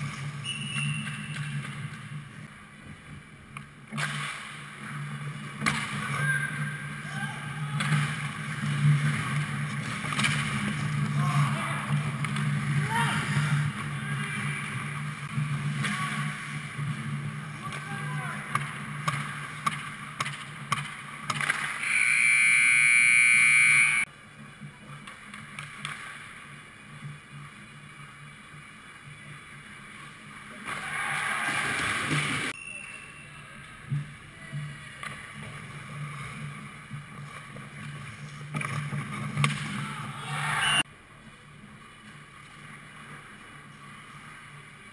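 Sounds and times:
skates scraping on ice: 7.8s - 17.8s, 18.4s - 21.9s, 33.9s - 40.6s
sticks and puck knocking on ice: 18.5s - 21.8s
game horn buzz: 21.8s - 24.0s.

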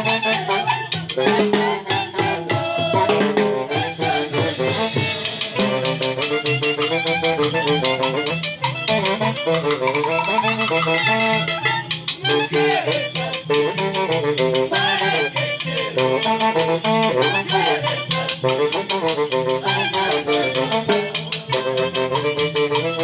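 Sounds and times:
saxophones and trumpet melody: 0.0s - 23.0s
band members singing: 0.2s - 5.7s, 12.2s - 21.9s.

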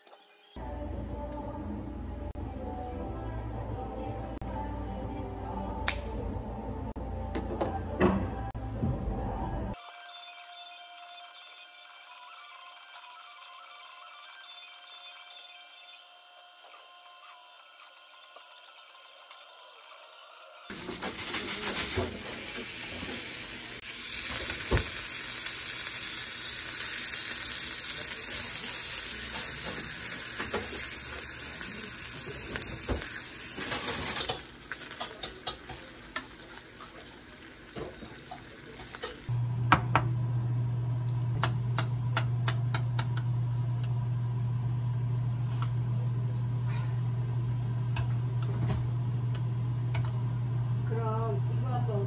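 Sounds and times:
meat sizzling in a frying pan: 20.7s - 39.4s
utensils and dishes clicking: 33.6s - 36.4s, 37.8s - 39.3s.

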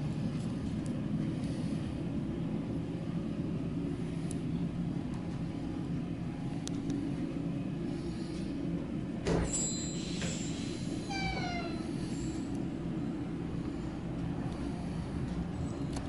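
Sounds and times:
low background rumble: 0.0s - 9.3s, 10.5s - 16.0s
high ringing tone: 9.5s - 10.2s.

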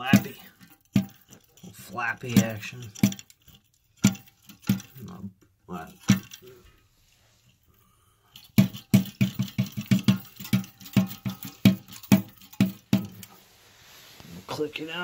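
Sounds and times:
toilet flapper knocking: 0.0s - 1.6s, 2.2s - 3.4s, 4.0s - 5.1s, 5.9s - 6.4s, 8.4s - 13.4s.

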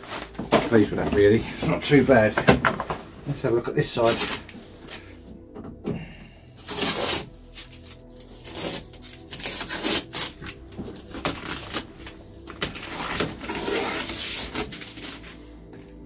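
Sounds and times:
tape and paper tearing off: 6.6s - 15.4s
paper crumpling: 6.6s - 15.6s.

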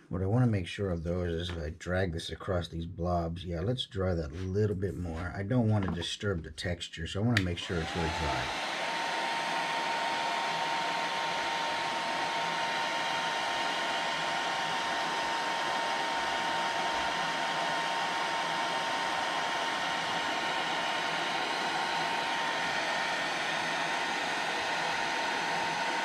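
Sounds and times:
heat gun blowing with whine: 7.6s - 26.0s.

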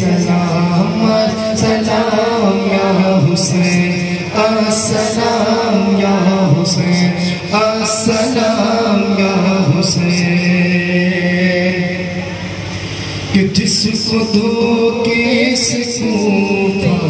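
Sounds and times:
man chanting into a microphone: 0.0s - 12.5s, 13.2s - 17.0s
steady low drone tone: 0.0s - 17.0s.

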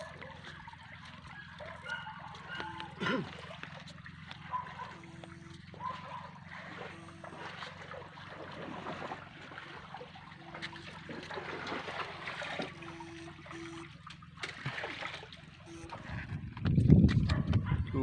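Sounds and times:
shallow water trickling and splashing: 0.0s - 16.6s
steady low hum: 0.0s - 18.0s
short low beeps: 4.6s - 8.0s, 12.6s - 14.1s, 15.6s - 16.6s.

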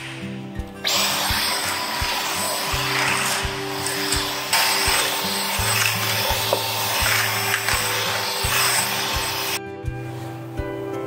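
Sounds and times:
stick vacuum running: 0.8s - 9.6s.

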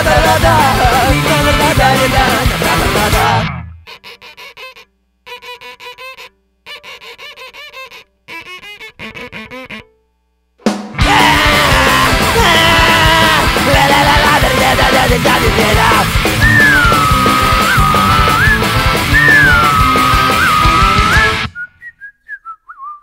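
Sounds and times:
loud rock music: 0.0s - 3.8s, 10.7s - 21.6s.

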